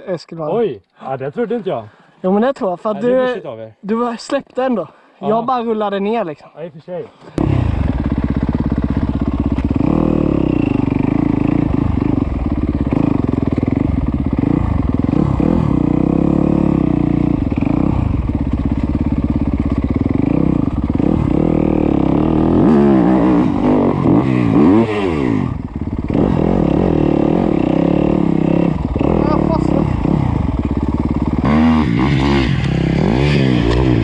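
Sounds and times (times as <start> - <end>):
dirt bike engine revving: 7.4 - 34.0.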